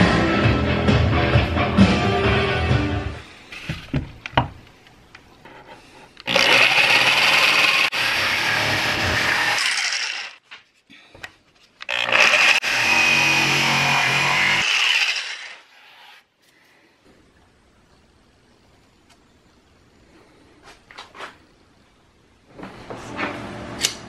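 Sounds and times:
electric jigsaw cutting plywood: 0:06.3 - 0:10.4, 0:11.9 - 0:15.6.

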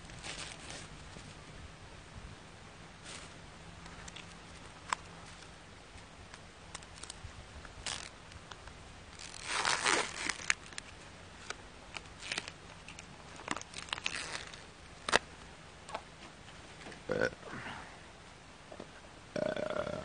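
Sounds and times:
plastic packaging crinkling: 0:00.0 - 0:01.4, 0:03.0 - 0:03.3, 0:03.9 - 0:05.5, 0:06.7 - 0:07.2, 0:07.8 - 0:15.3.

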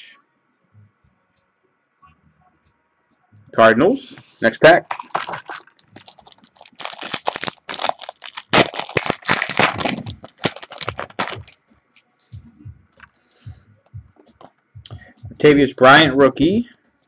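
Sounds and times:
wrapper tearing and crinkling: 0:04.8 - 0:11.6.

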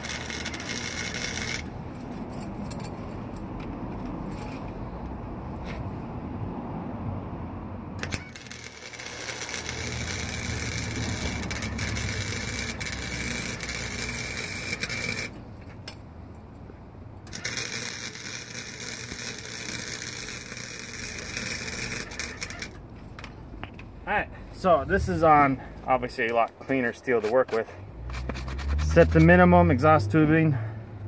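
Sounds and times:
welder arc crackling: 0:00.0 - 0:01.7, 0:08.0 - 0:15.4, 0:17.2 - 0:22.8.

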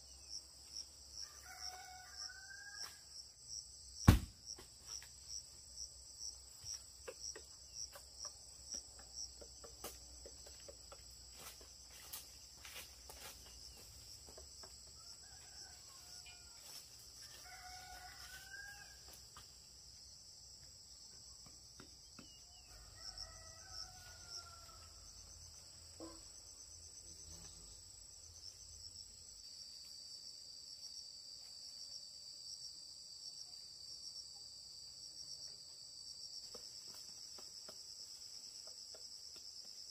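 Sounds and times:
insects chirping: 0:00.0 - 0:39.9
rooster crowing: 0:01.2 - 0:03.1, 0:15.0 - 0:19.2, 0:22.6 - 0:25.2.

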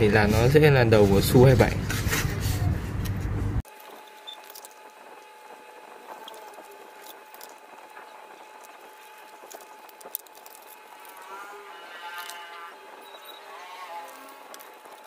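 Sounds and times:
knife scratching foam board: 0:06.0 - 0:15.0.

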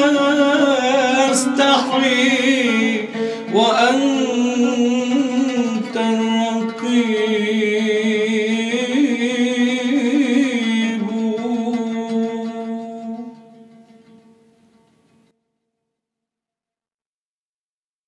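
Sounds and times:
man singing with vibrato: 0:00.0 - 0:13.5.

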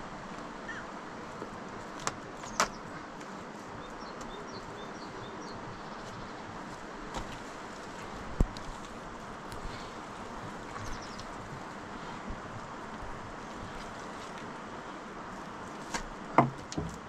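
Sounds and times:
outdoor background noise: 0:00.0 - 0:17.0
sharp knocks: 0:16.4 - 0:17.0.

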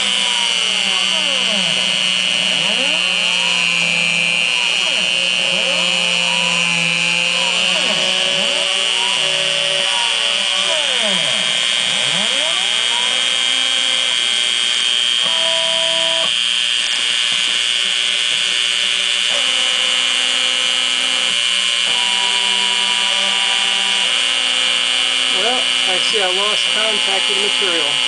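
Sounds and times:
rotary tool whining: 0:00.0 - 0:28.0
stepper motors singing tones: 0:25.2 - 0:28.0.

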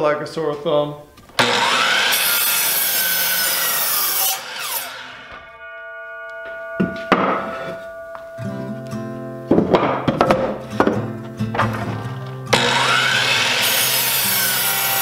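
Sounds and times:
miter saw cutting wood: 0:01.4 - 0:05.4, 0:12.5 - 0:15.0
saw blade winding down whine: 0:01.4 - 0:05.4, 0:12.6 - 0:15.0.

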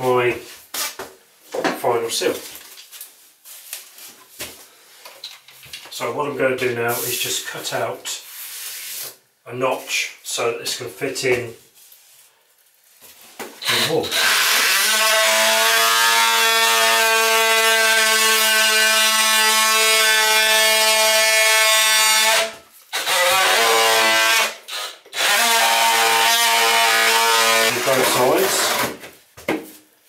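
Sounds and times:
power tool cutting wall: 0:13.6 - 0:29.0.

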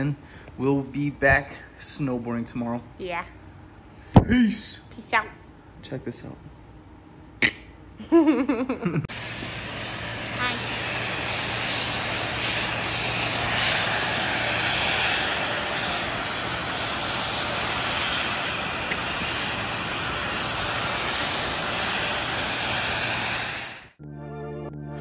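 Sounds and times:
snowmaking guns rushing: 0:09.1 - 0:23.9.

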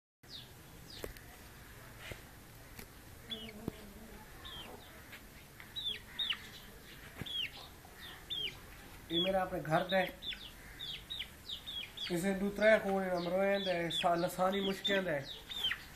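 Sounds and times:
chickens chirping: 0:00.3 - 0:15.9.

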